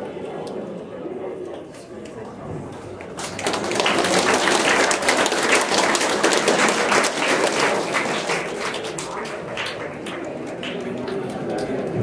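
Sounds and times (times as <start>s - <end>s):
audience applauding: 3.0s - 12.0s.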